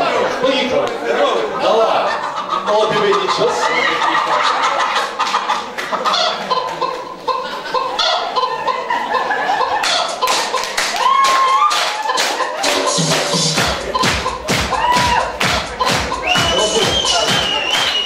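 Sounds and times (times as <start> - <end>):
crowd clapping along: 9.8 - 18.0
dance music playing: 11.4 - 18.0.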